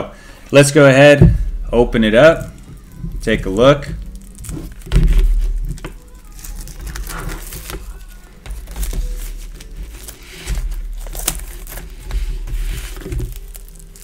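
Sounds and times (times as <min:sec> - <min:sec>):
plastic wrap crinkling: 0:02.1 - 0:14.0.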